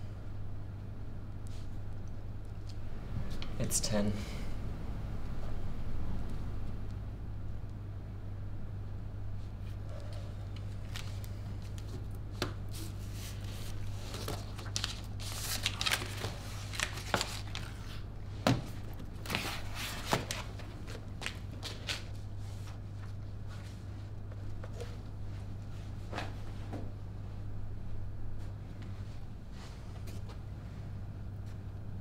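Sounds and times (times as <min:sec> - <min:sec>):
steady low hum: 0:00.0 - 0:32.0
page rustles: 0:10.6 - 0:18.1, 0:18.7 - 0:23.8.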